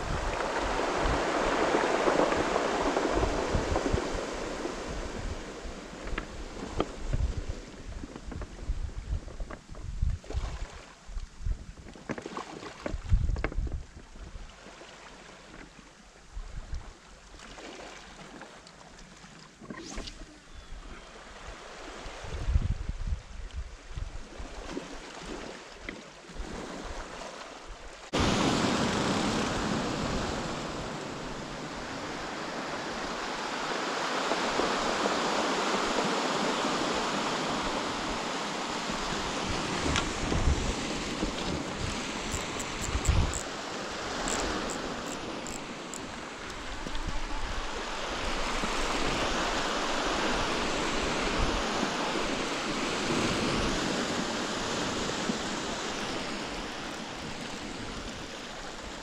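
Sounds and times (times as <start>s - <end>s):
waves washing over pebbles: 0.0s - 7.8s, 28.1s - 59.0s
wind buffeting microphone: 0.0s - 10.6s, 12.9s - 14.4s, 22.2s - 24.2s, 36.8s - 58.5s.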